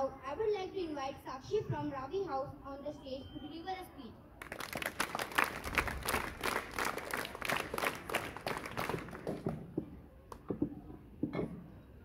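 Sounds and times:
audience clapping: 0:04.4 - 0:09.6.

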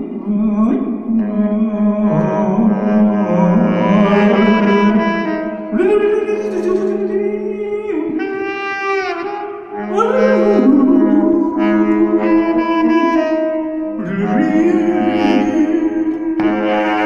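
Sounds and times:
saxophone improvising: 0:01.2 - 0:05.8, 0:08.2 - 0:17.0.

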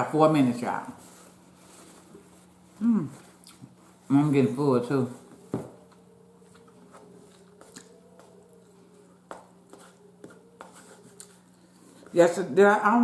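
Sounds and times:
faint steady hum: 0:00.0 - 0:13.0
soft chewing: 0:01.4 - 0:04.1, 0:05.4 - 0:12.2.

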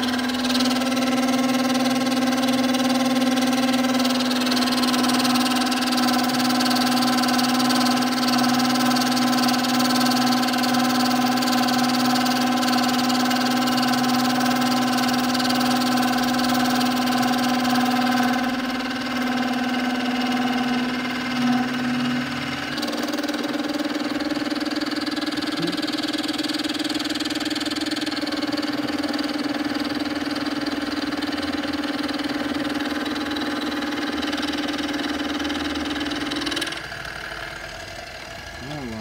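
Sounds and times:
milling machine motor hum: 0:00.0 - 0:39.0
cutter chewing through metal: 0:25.4 - 0:26.1.

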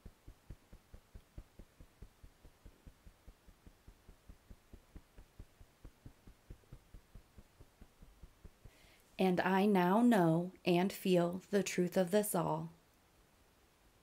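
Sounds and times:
fingertips tapping through shirt: 0:00.0 - 0:09.0.

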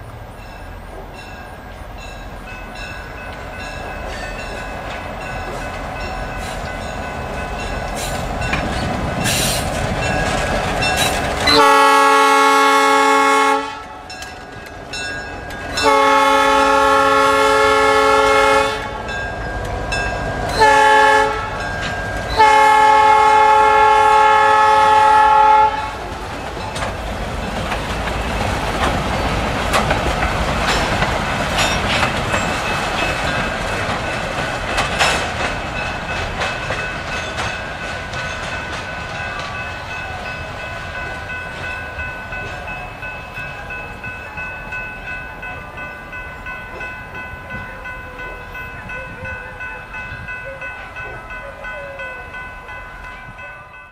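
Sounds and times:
train wheel noise: 0:00.0 - 0:53.9
locomotive engines running: 0:01.0 - 0:53.9
wheels clicking over rail joints: 0:02.7 - 0:11.7, 0:25.9 - 0:45.2
locomotive air horn: 0:11.5 - 0:14.0, 0:15.8 - 0:19.1, 0:20.6 - 0:21.6, 0:22.4 - 0:26.1.

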